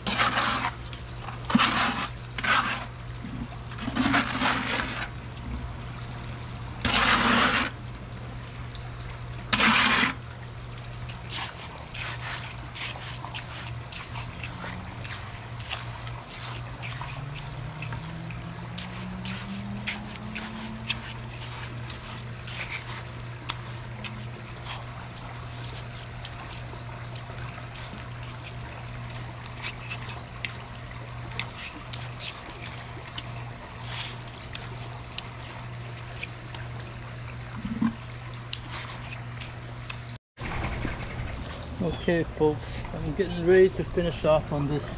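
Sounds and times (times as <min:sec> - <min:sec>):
hands smoothing wet concrete: 0:00.0 - 0:00.8, 0:01.5 - 0:02.9, 0:03.8 - 0:05.1, 0:06.8 - 0:07.8, 0:09.5 - 0:10.2, 0:11.1 - 0:28.5
wet concrete pouring from bucket: 0:00.0 - 0:05.2, 0:06.8 - 0:07.8, 0:09.4 - 0:10.3, 0:11.0 - 0:36.2
low hum: 0:00.0 - 0:44.9.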